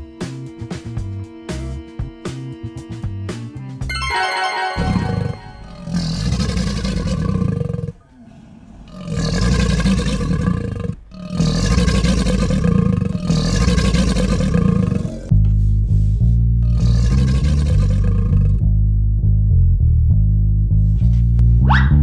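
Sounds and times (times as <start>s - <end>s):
music with bass line: 0.0s - 4.2s, 15.3s - 17.9s, 18.5s - 22.0s
monster roars: 5.6s - 15.3s, 16.7s - 18.6s.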